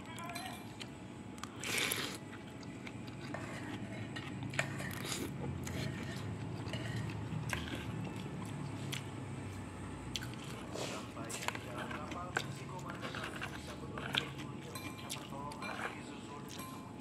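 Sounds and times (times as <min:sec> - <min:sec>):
steady low hum: 0:00.0 - 0:17.0
spoon stirring noodles: 0:03.0 - 0:08.7, 0:10.2 - 0:17.0.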